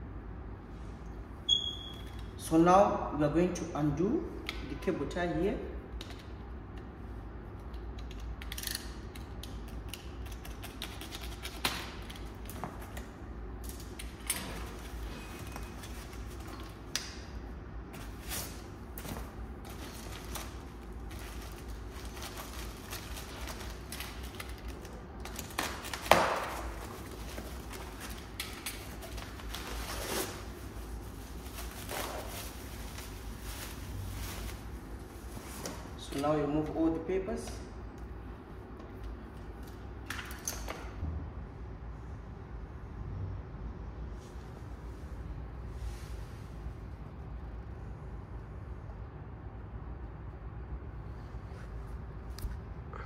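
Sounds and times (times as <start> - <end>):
packing material rustling: 17.9 - 36.0.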